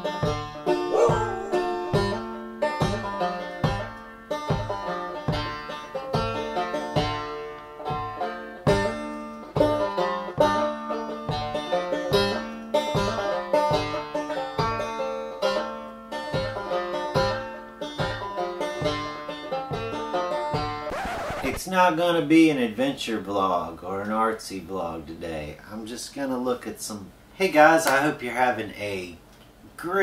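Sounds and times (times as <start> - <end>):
banjo picking bluegrass tune: 0.0 - 20.9.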